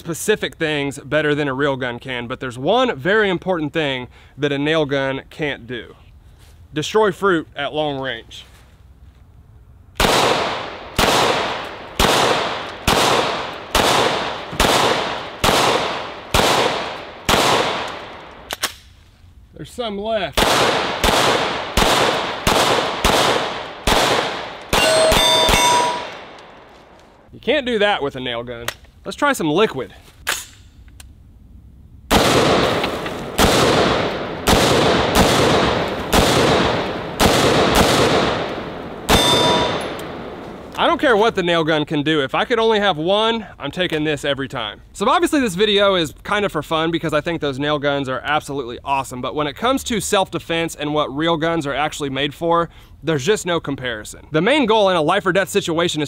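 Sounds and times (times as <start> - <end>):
pistol shots: 10.0 - 18.8, 20.4 - 26.6, 32.1 - 40.7.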